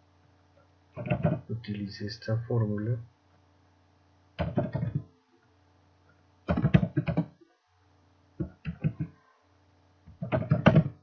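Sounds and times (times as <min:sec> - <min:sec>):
computer keyboard typing: 0:01.0 - 0:01.4, 0:04.4 - 0:05.1, 0:06.5 - 0:07.4, 0:10.1 - 0:11.0.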